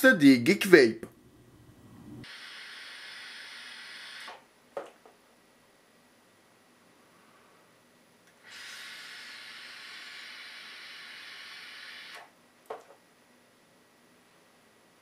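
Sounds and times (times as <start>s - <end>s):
vape inhale hiss: 2.2s - 4.3s.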